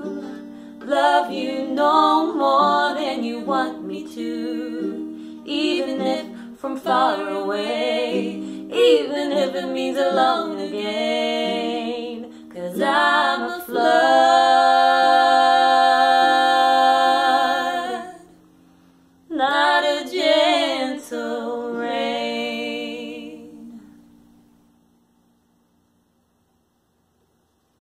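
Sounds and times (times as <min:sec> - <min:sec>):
woman singing long notes: 0:00.0 - 0:18.4.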